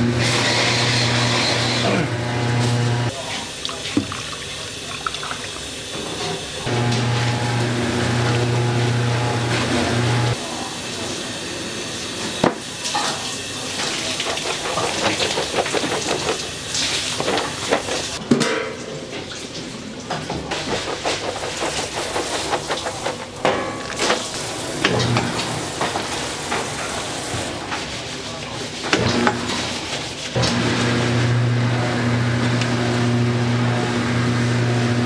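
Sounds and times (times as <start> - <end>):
liquid sloshing: 3.2 - 6.6
utensils and pots clattering: 12.3 - 31.0.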